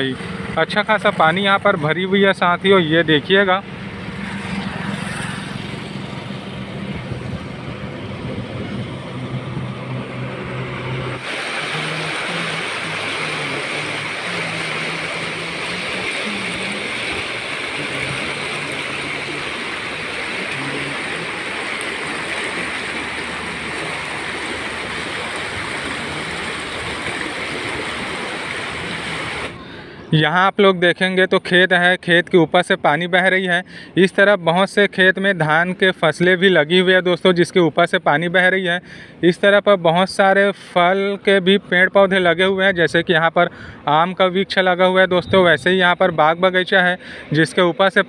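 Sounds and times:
floodwater rushing: 0:00.0 - 0:29.8
low hum: 0:03.1 - 0:29.6.

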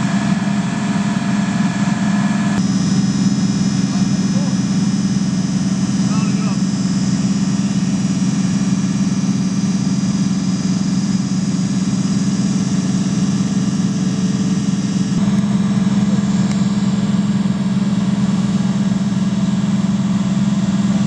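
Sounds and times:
diesel engine droning: 0:00.0 - 0:21.0.

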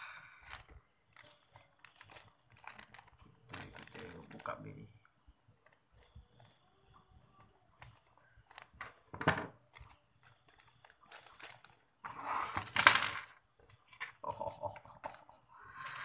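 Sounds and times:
plastic packaging crinkling: 0:00.4 - 0:04.6, 0:07.8 - 0:09.0, 0:09.7 - 0:12.0.

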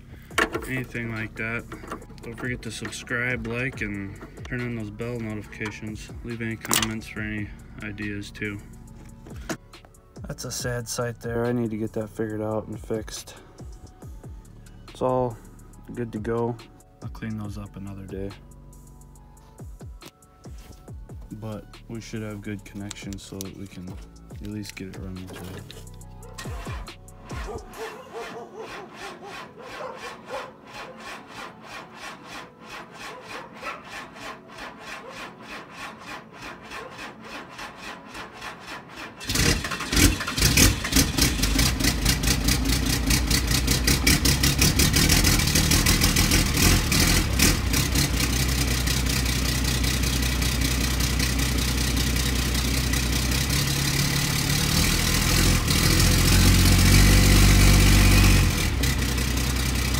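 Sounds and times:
diesel engine idling: 0:00.0 - 0:09.6, 0:38.3 - 0:59.9
starter motor cranking: 0:00.1 - 0:08.1, 0:22.6 - 0:59.9.

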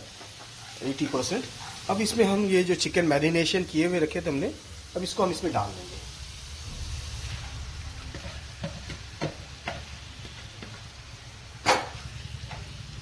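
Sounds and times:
chicken sizzling in a frying pan: 0:00.0 - 0:13.0
metal spatula knocking on pan: 0:08.1 - 0:10.8.

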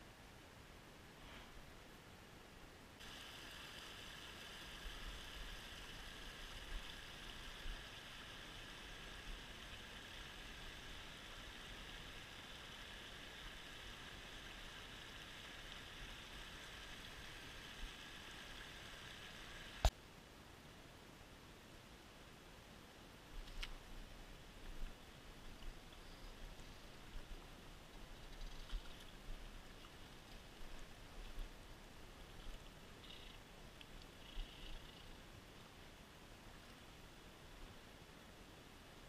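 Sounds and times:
creek water rushing over stones: 0:03.0 - 0:19.9.

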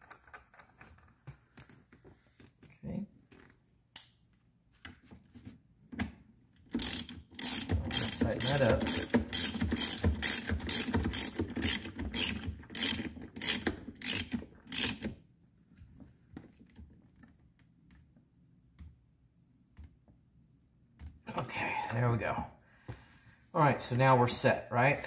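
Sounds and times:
ratchet wrench clicking: 0:06.7 - 0:15.1.

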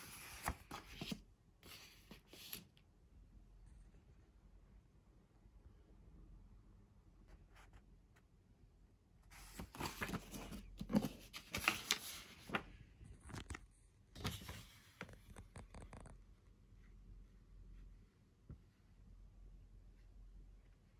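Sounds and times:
rustling handling noise: 0:09.3 - 0:16.0.

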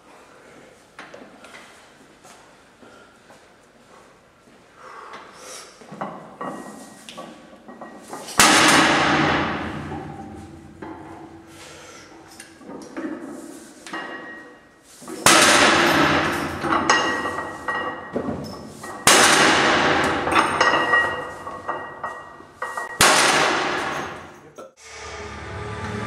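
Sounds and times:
iron plates clanging onto floor: 0:05.9 - 0:24.5.

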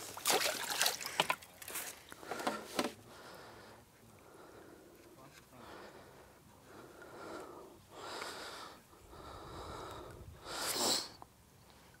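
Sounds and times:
person breathing close: 0:02.2 - 0:11.2
sharp sniff-like breath: 0:10.4 - 0:11.2.

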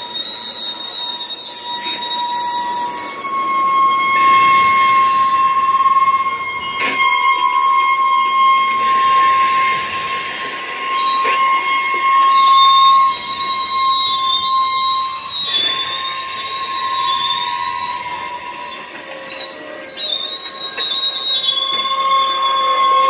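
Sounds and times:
rumble of rail cars: 0:00.0 - 0:23.0
train wheels squealing: 0:00.0 - 0:23.0.

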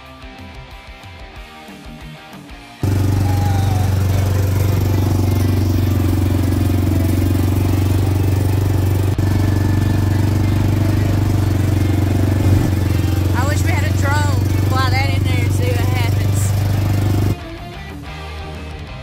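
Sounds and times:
engine and drivetrain drone: 0:02.8 - 0:17.7.

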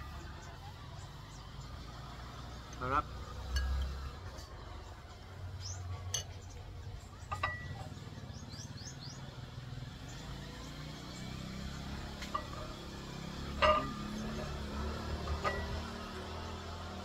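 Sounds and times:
bird chirps: 0:05.6 - 0:09.3
dish clinking: 0:07.3 - 0:08.0, 0:12.2 - 0:16.1.

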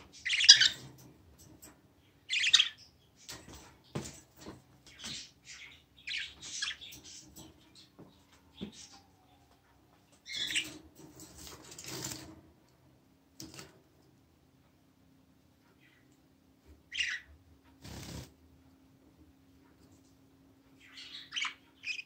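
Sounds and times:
budgerigars chirping and squawking: 0:00.1 - 0:01.0, 0:02.2 - 0:04.2, 0:04.8 - 0:09.4, 0:10.2 - 0:10.8, 0:16.9 - 0:17.3, 0:20.8 - 0:22.0.

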